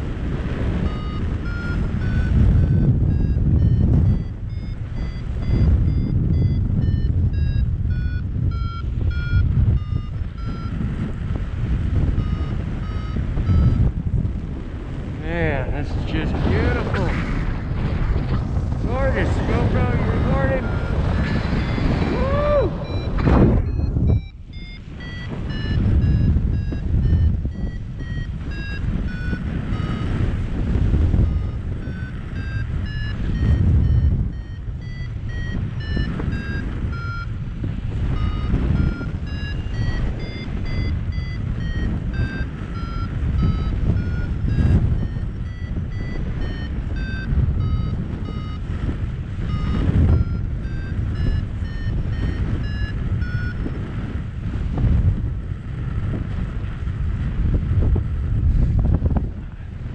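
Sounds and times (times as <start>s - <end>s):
variometer beeping: 0.0s - 16.9s, 17.6s - 55.2s
wind on microphone: 0.0s - 59.9s.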